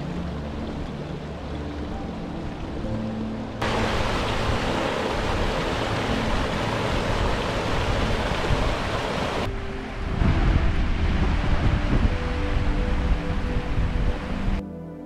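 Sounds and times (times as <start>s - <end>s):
stream tumbling over rocks: 3.6s - 12.0s.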